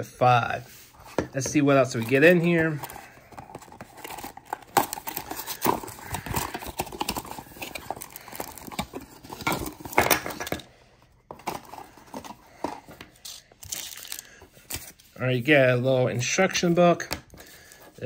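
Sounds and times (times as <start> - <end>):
paper rustling: 1.0 - 10.0
cardboard box being opened: 1.8 - 10.0.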